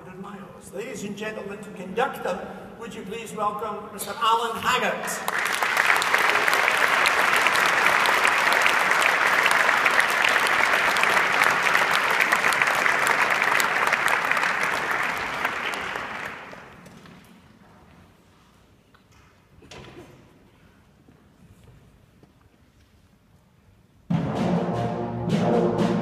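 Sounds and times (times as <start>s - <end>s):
audience applauding: 5.2s - 16.9s.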